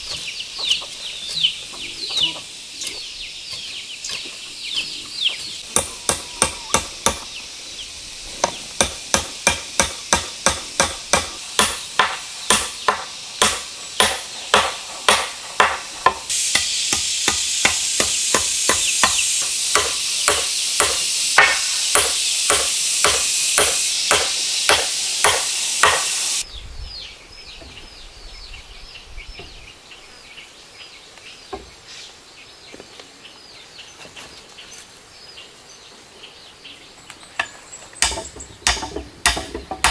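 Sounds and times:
steady high hiss: 0:00.0 - 0:39.9
tool striking wood: 0:05.6 - 0:07.3, 0:08.4 - 0:26.3, 0:37.4 - 0:39.9.

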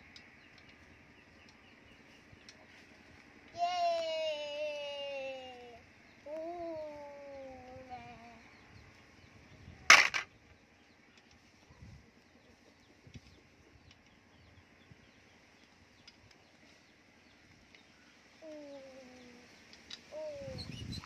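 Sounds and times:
sharp clatter of knocks: 0:09.9 - 0:10.3.

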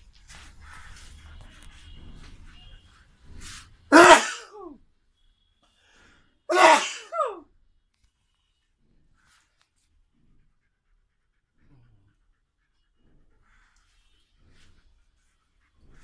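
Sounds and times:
person sneezing: 0:03.9 - 0:04.8, 0:06.5 - 0:07.4.

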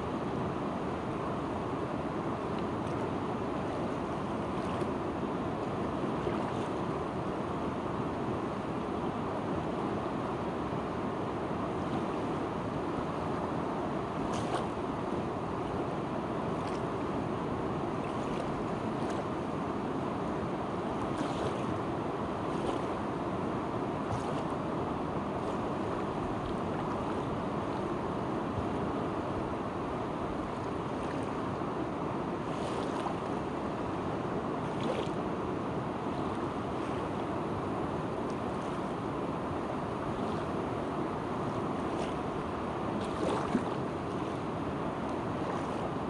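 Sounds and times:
river rushing over shallows: 0:00.0 - 0:46.0
faint small splashes: 0:14.3 - 0:14.8, 0:18.0 - 0:19.3, 0:21.0 - 0:21.8, 0:24.1 - 0:24.6, 0:32.5 - 0:33.3, 0:34.6 - 0:35.2, 0:41.7 - 0:42.3, 0:42.9 - 0:44.4, 0:45.0 - 0:45.8.

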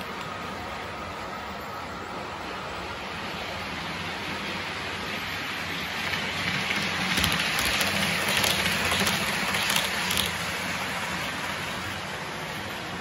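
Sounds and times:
wheels clicking over track: 0:05.8 - 0:12.1.

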